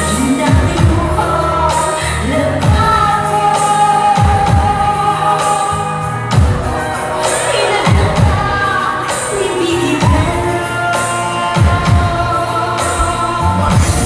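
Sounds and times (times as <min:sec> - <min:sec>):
person singing: 0:00.0 - 0:14.0
upbeat pop dance music: 0:00.0 - 0:14.0
sliding deep bass notes: 0:11.7 - 0:14.0.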